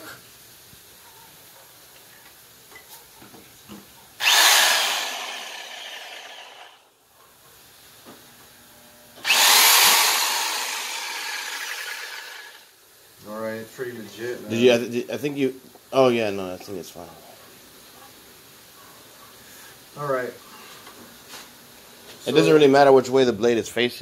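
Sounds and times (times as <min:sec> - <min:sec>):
jigsaw motor running: 0:04.2 - 0:06.8, 0:09.2 - 0:12.6.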